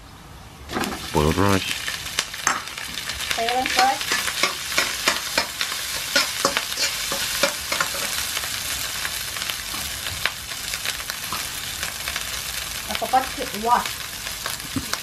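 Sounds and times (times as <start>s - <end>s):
rice sizzling in oil: 0.7s - 15.0s
metal spatula scraping a wok: 4.0s - 8.4s.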